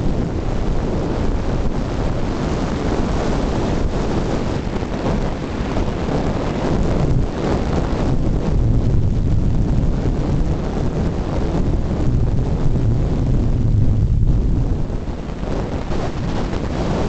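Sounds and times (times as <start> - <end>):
wind buffeting microphone: 0.0 - 17.0
low steady rumble: 6.7 - 17.0.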